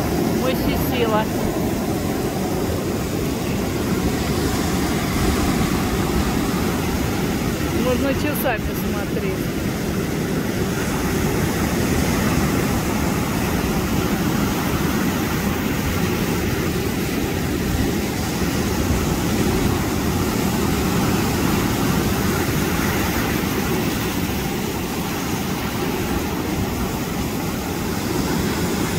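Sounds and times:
waves breaking on shore: 0.0 - 28.9.

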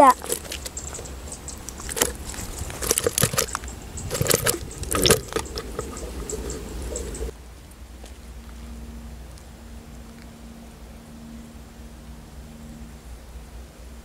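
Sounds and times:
fish flopping in a plastic bucket: 0.2 - 7.3.

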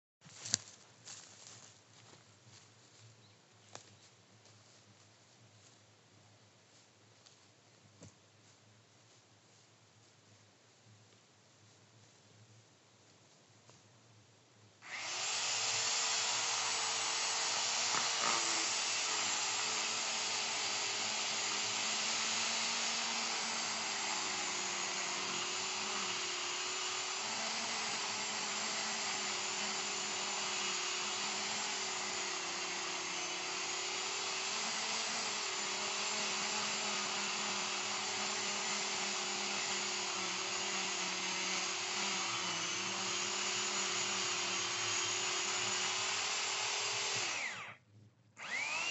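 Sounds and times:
electric chainsaw cutting tree: 14.8 - 47.8, 48.4 - 48.9.

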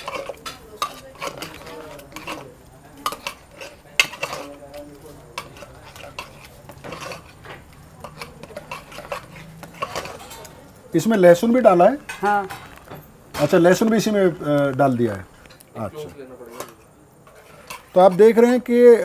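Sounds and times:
metal spoon scraping metal pot: 0.0 - 10.7, 15.2 - 19.0.

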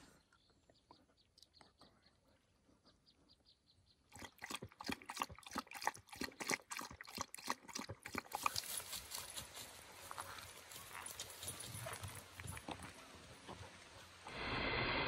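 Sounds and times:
small wet splashes and clicks: 4.1 - 9.3, 11.9 - 13.6.

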